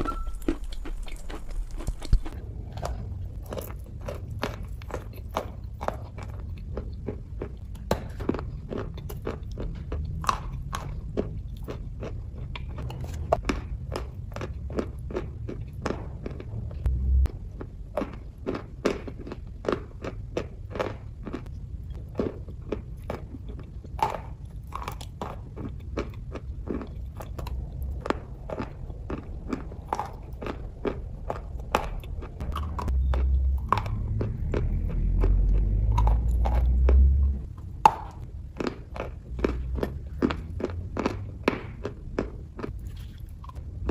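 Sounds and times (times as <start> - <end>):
low rumble: 0.0 - 18.8, 25.4 - 43.9
crunchy chewing: 0.0 - 43.9.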